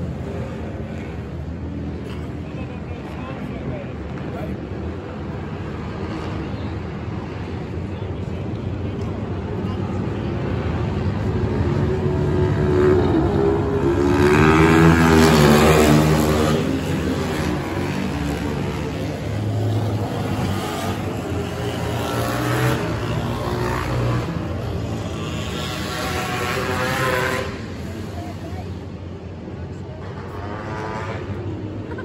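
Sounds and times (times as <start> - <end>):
dirt bike engines revving: 10.0 - 29.0.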